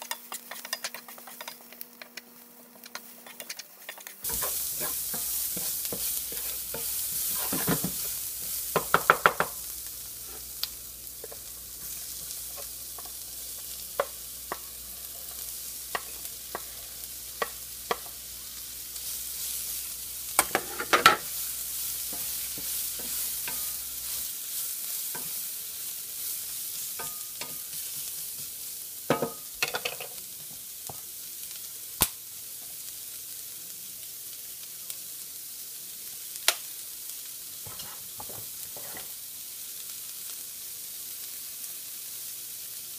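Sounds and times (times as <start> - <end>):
spatula scraping and tapping pan: 0.0 - 18.3, 19.0 - 31.1, 37.6 - 39.2
vegetables sizzling in oil: 0.0 - 42.9.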